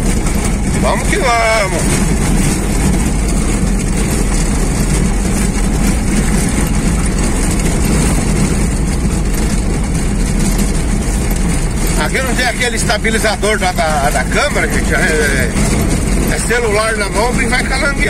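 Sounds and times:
car engine drone: 0.0 - 18.0
tyre and road noise: 0.0 - 18.0.

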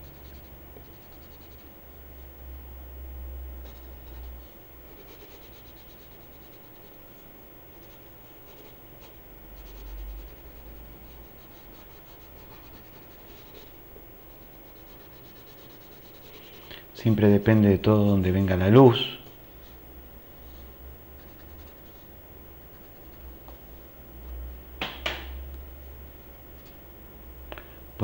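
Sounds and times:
pencil scratching on paper: 0.0 - 1.7, 3.6 - 16.7, 20.5 - 23.3.

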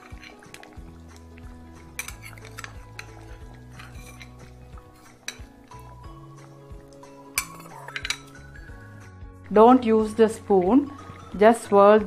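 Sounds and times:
background music: 0.0 - 12.0
spoon clinking against bowl: 1.9 - 5.9, 7.4 - 8.4.

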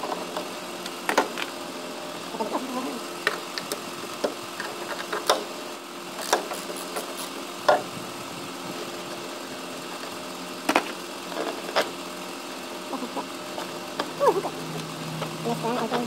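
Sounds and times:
car engine idling: 0.0 - 16.0
clicks and knocks of parts: 3.2 - 5.5.

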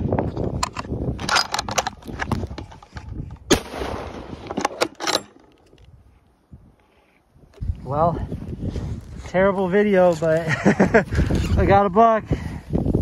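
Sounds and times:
rifle shot: 3.5 - 4.7.

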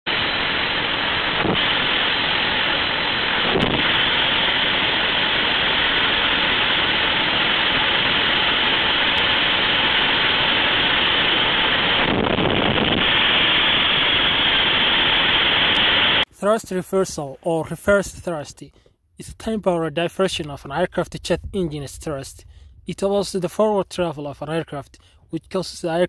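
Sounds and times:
jet engine rushing noise: 0.1 - 17.2.

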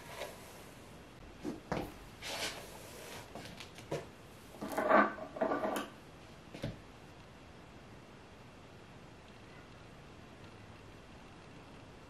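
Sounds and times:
objects clattering: 3.9 - 6.0.

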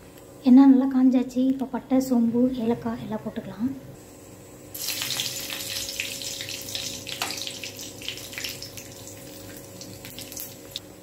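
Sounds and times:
spices sizzling in hot oil: 4.7 - 10.8.

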